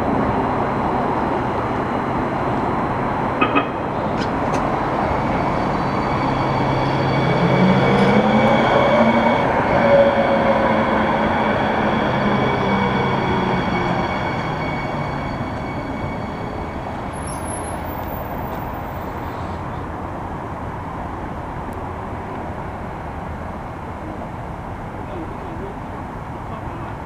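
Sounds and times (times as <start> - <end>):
train running noise: 0.0 - 23.6.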